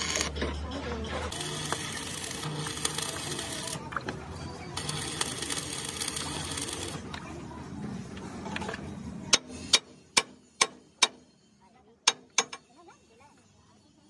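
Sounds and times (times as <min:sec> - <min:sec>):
arc welding crackling: 0:00.0 - 0:00.4, 0:01.3 - 0:03.9, 0:04.8 - 0:07.1.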